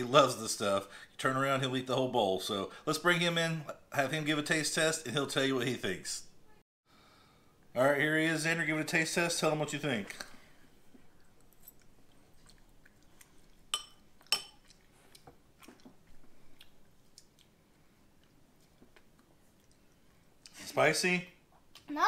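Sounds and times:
child chewing: 0:10.2 - 0:20.6
wet mouth sounds: 0:11.0 - 0:20.6
metal fork clinking on bowl: 0:13.7 - 0:14.6.

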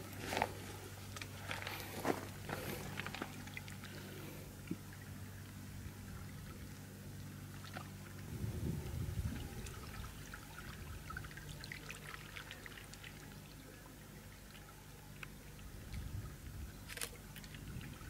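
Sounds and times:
small splashes: 0:07.4 - 0:08.3, 0:09.3 - 0:13.7
low rumble: 0:08.1 - 0:11.2.

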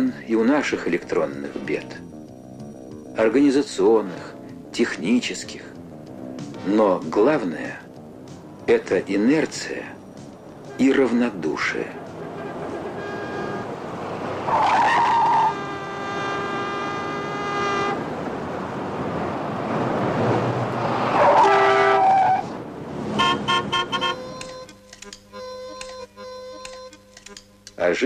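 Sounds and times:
city street traffic: 0:00.0 - 0:28.0
car horns honking: 0:09.5 - 0:18.2, 0:21.1 - 0:27.4.

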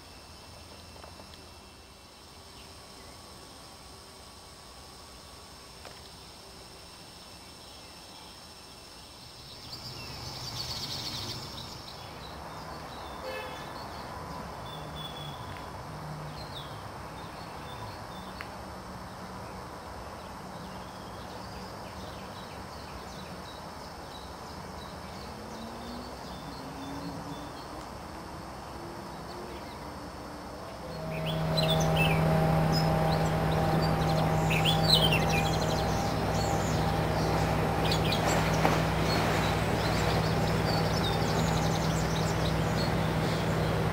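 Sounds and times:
low engine hum: 0:09.3 - 0:13.2, 0:24.9 - 0:43.9
small birds chirping: 0:30.9 - 0:43.9.

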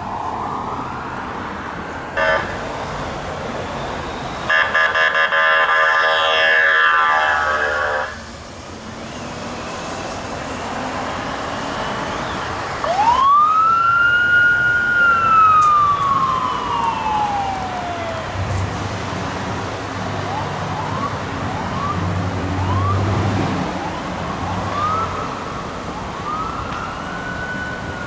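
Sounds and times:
traffic noise: 0:00.0 - 0:28.0
horn blast: 0:04.5 - 0:08.2
motorcycle siren wailing: 0:04.5 - 0:08.2, 0:12.8 - 0:18.4, 0:20.2 - 0:23.1, 0:23.7 - 0:28.0.

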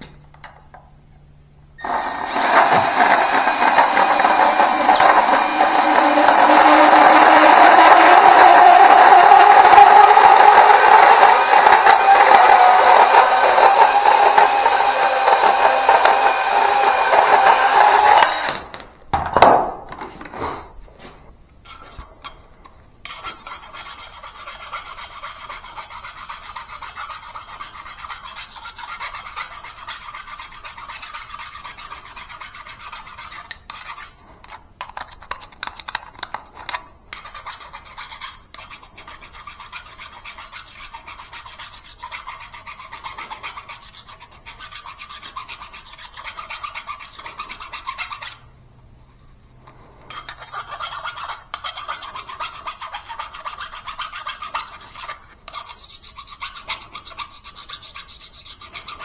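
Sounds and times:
rasping scrape of deburring: 0:01.8 - 0:18.5
band saw cutting steel pipe: 0:01.8 - 0:18.6.

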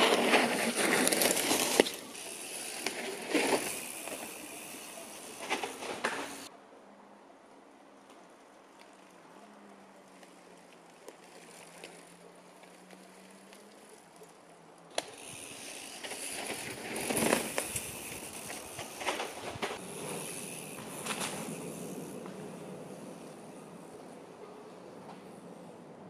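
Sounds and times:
bike frame and chain rattle: 0:00.0 - 0:06.5, 0:14.9 - 0:24.0
bike tyre noise on dirt: 0:00.0 - 0:06.5, 0:08.0 - 0:26.0.

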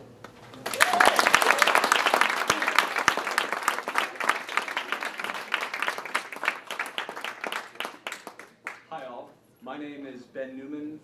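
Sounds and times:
audience applauding: 0:00.5 - 0:08.9.

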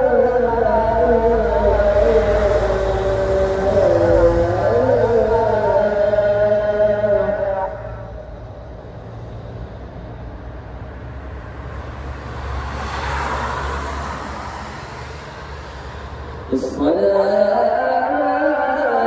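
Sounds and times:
car passing: 0:00.0 - 0:19.0.

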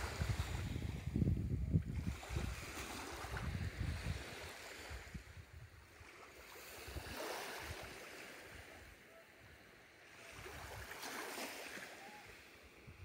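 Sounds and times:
wind buffeting microphone: 0:00.0 - 0:06.0
small waves lapping on shore: 0:00.0 - 0:13.0.

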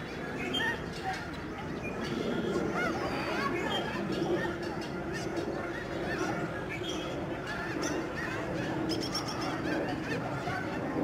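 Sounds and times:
flock of geese honking: 0:07.4 - 0:11.0.

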